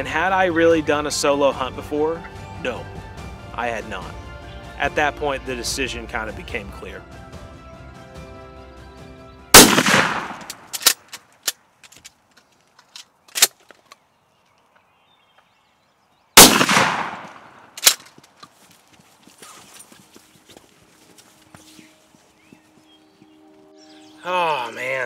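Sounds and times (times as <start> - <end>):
shotgun blasts: 9.5 - 11.0, 16.4 - 18.0.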